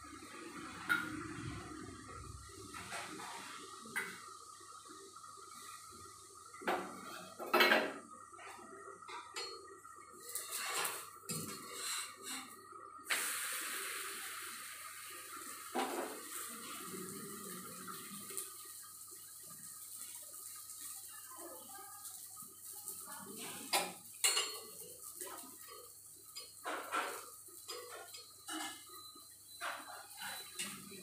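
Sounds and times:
steady hiss: 0:10.0 - 0:30.2.

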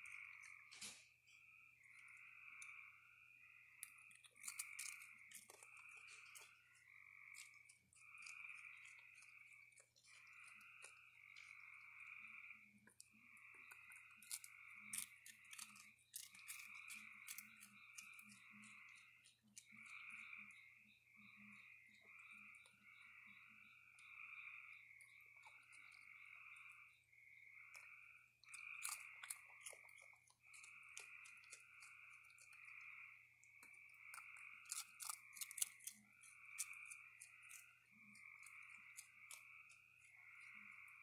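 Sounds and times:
frogs calling: 0:00.0 - 0:41.0
raccoon crunching food: 0:00.0 - 0:41.0.

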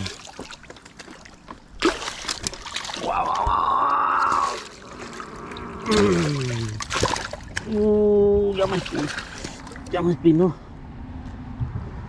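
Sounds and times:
fish splashing in water: 0:00.0 - 0:07.9, 0:08.6 - 0:09.9
water trickling around rocks: 0:00.0 - 0:10.1
person drawn-out voiced sound: 0:05.7 - 0:06.8.

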